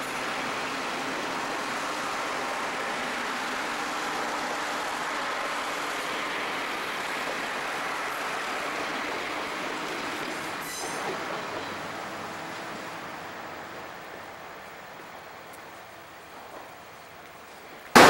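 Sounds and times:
train rumbling and clattering past: 0.0 - 18.0
high-pitched squeal: 10.6 - 11.2.

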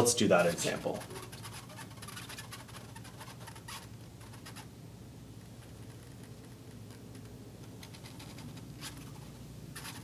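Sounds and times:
marker scratching on glass: 0.2 - 4.8, 5.4 - 10.0.

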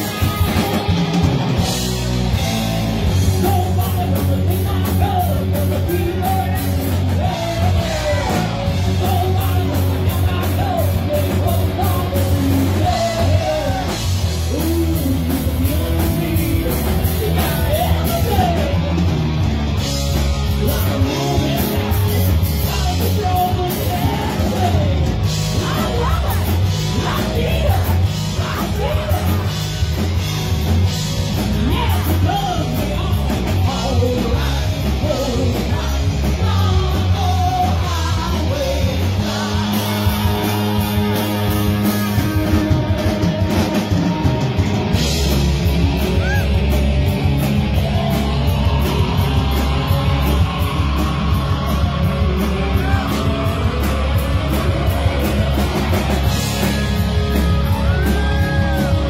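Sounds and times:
bass guitar: 0.0 - 59.0
drum kit: 0.0 - 59.0
electric guitar: 0.0 - 59.0.

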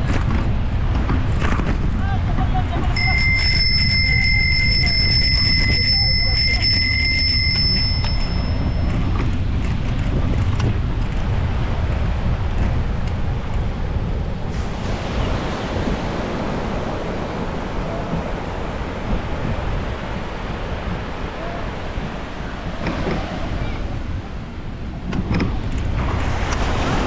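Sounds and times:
surf washing: 0.0 - 27.0
wind buffeting microphone: 0.0 - 27.0
bicycle bell ringing: 2.9 - 9.4.

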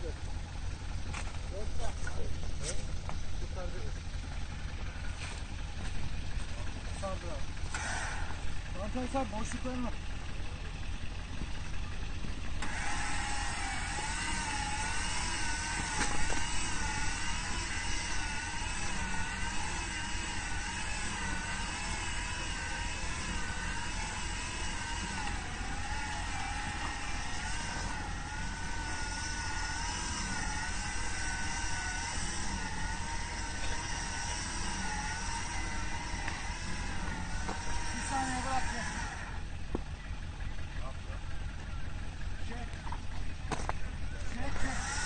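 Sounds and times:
vehicle engine running: 0.0 - 45.0
high wavering whine: 11.4 - 45.0.

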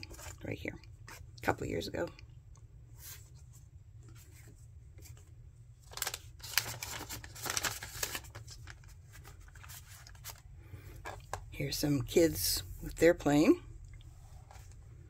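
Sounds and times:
paper pages rustling and flapping: 0.0 - 0.5, 3.0 - 11.5.

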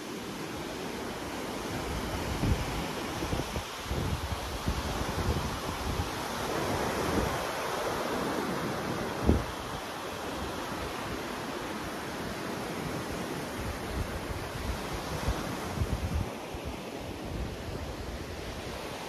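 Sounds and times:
waves breaking on beach: 0.0 - 19.0
wind buffeting microphone: 1.8 - 7.6.

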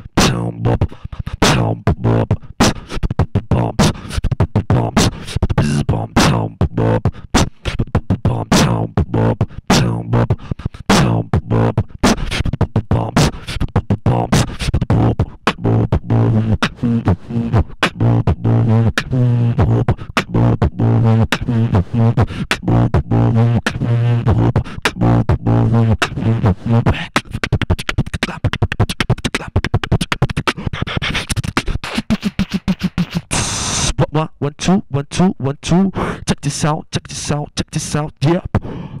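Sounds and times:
beatboxing into a microphone: 0.0 - 39.0
low bass tone: 14.9 - 26.8.

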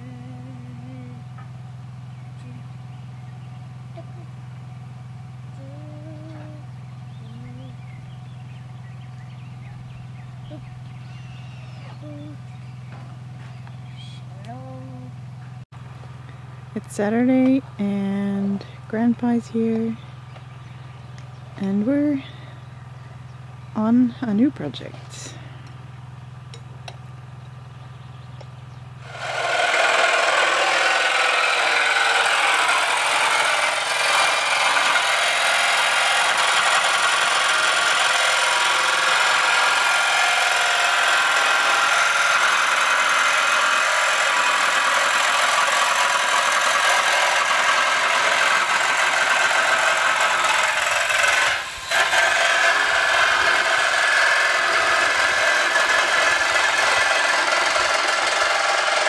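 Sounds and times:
power tool running at high speed: 29.0 - 59.0.

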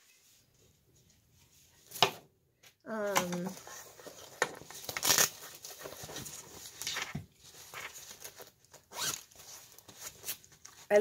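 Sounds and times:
sharp fabric rasps: 9.0 - 9.2.

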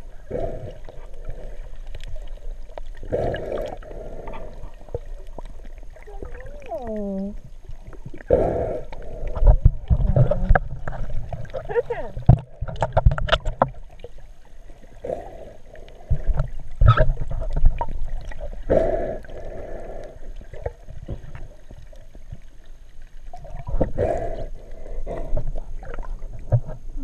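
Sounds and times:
water sloshing and gurgling: 0.0 - 27.0.

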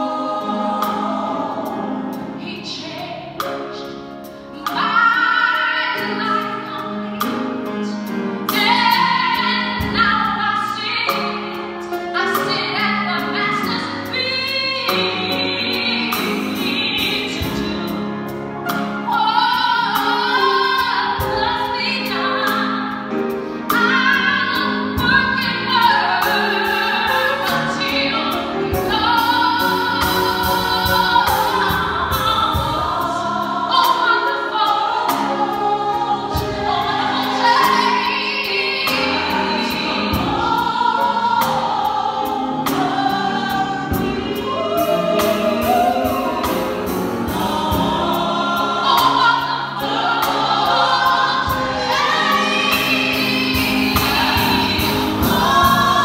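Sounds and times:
gospel choir singing: 0.0 - 56.0
drum kit beat: 22.5 - 56.0.

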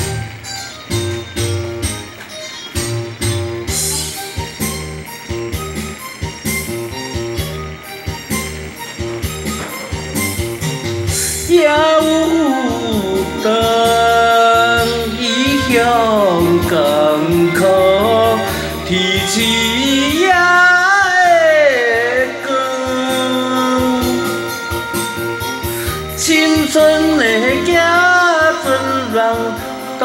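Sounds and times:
karaoke backing track: 0.0 - 30.0
man singing into microphone: 11.5 - 24.8, 26.1 - 30.0.

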